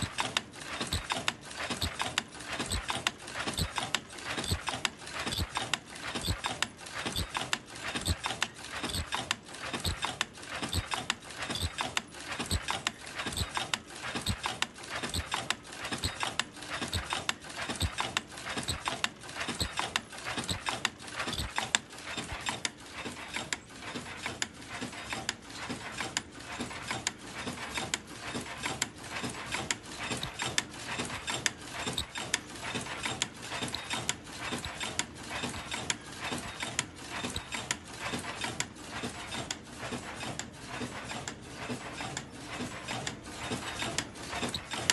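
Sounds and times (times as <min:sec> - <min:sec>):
machine rhythmic clattering: 0:00.0 - 0:44.9.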